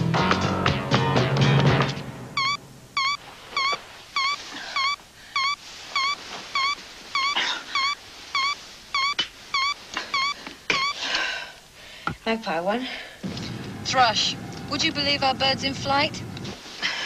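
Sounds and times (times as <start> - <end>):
telephone ringer warbling beeps: 2.4 - 11.0
rustle of bedclothes: 5.6 - 9.9, 16.4 - 17.0.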